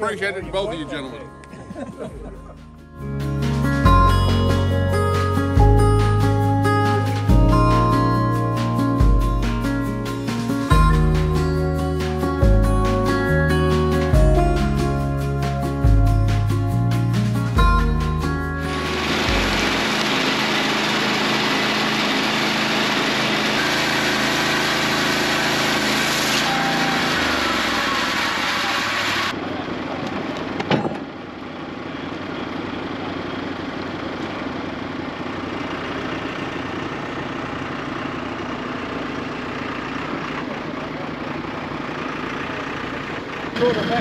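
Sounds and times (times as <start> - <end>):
sawmill engine cutting log: 18.6 - 31.1
heavy machine engine idling: 18.7 - 44.0.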